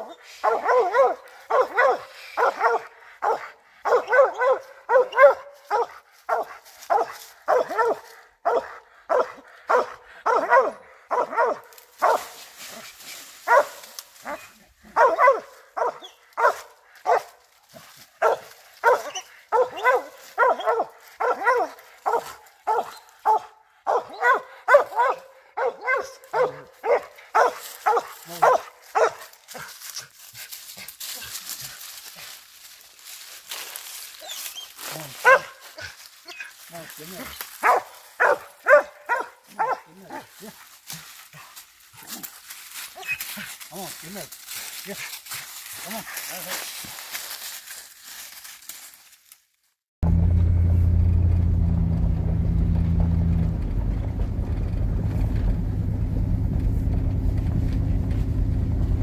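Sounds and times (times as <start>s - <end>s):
dog barking: 0.0s - 12.4s, 13.4s - 17.4s, 18.2s - 29.7s, 34.2s - 40.6s.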